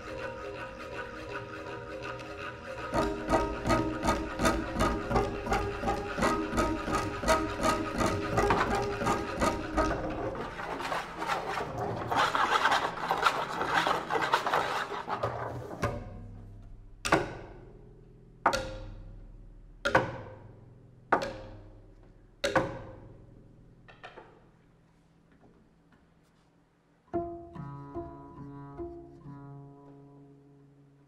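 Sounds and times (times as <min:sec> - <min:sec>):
double bass scraping and rubbing: 0:00.0 - 0:16.6
low held double bass tone: 0:27.2 - 0:31.0.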